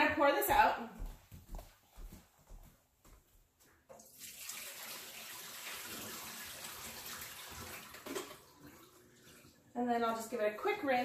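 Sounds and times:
water pouring into a sink: 0:03.9 - 0:09.8.

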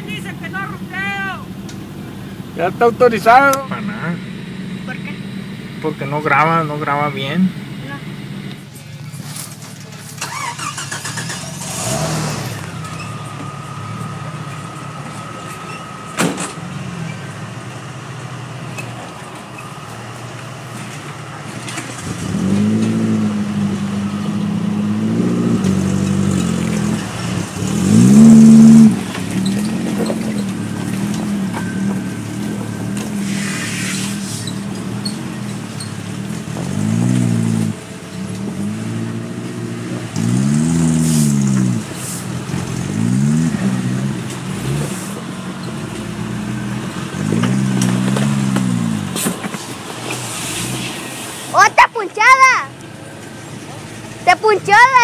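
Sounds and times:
truck engines revving: 0:00.0 - 0:55.0.

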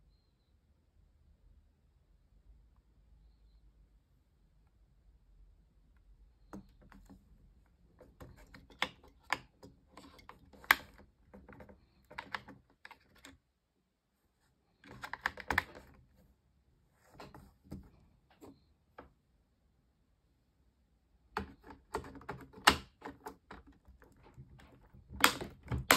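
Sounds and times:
plastic clicks and rattles: 0:08.0 - 0:13.4, 0:14.8 - 0:16.1, 0:21.4 - 0:25.9.

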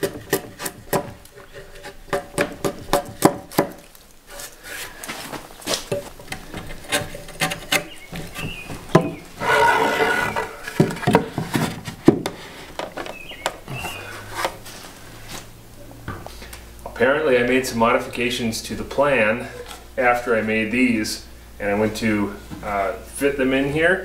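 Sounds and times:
chisel scraping wood: 0:06.4 - 0:08.5, 0:09.4 - 0:11.8.

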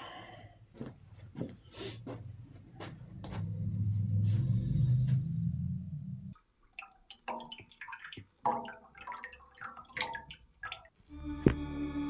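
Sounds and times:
low rumbling drone: 0:03.4 - 0:06.3, 0:11.1 - 0:12.0
water dripping in washbasin: 0:06.3 - 0:11.0.

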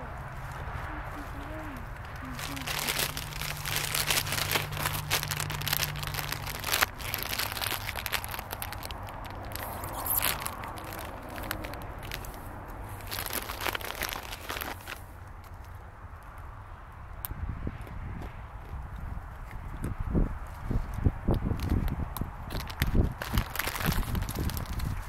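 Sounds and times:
plastic snack bag crinkling: 0:02.0 - 0:15.6, 0:22.5 - 0:25.0.

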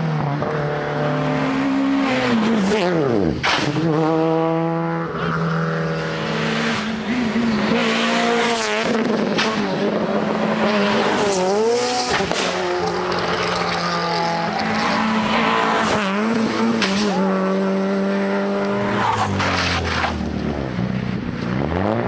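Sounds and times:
rally car engine revving: 0:00.0 - 0:22.0
sharp engine pops: 0:03.4 - 0:03.8, 0:12.0 - 0:13.0.

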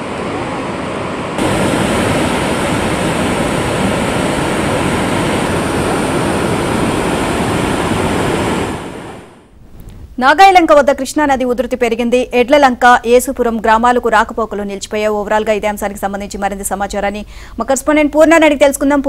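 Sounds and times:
rushing floodwater: 0:01.2 - 0:09.3.

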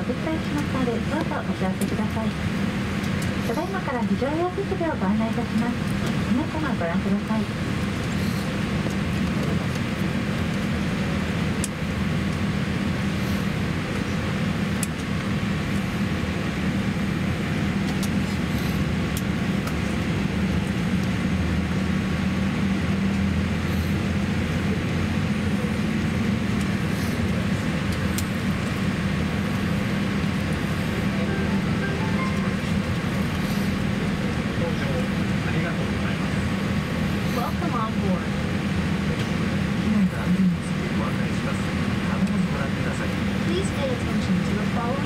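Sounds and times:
airliner cabin hum: 0:00.0 - 0:45.0.

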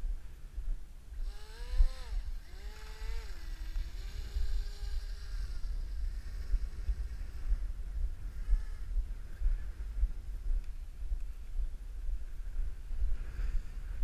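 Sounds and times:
wind rumbling on microphone: 0:00.0 - 0:14.0
toy boat motor whining: 0:01.2 - 0:06.3.

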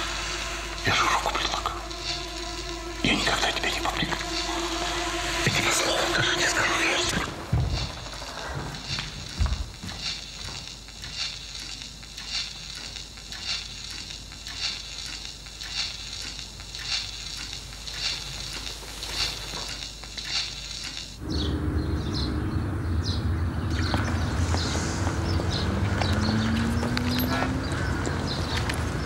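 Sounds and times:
outdoor background rumble: 0:00.0 - 0:11.0, 0:21.2 - 0:29.0
faint hiss: 0:00.0 - 0:21.2.

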